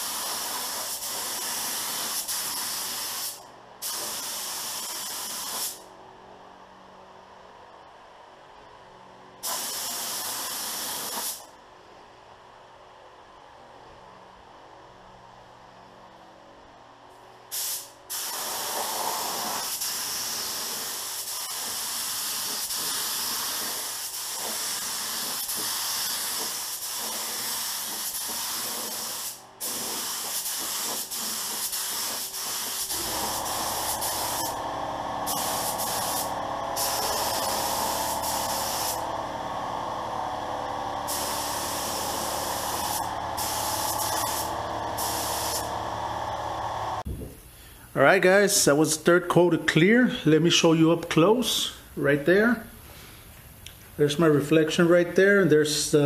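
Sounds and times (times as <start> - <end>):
spray gun hissing: 0.0 - 5.8, 9.4 - 11.4, 17.5 - 39.2, 41.0 - 47.0.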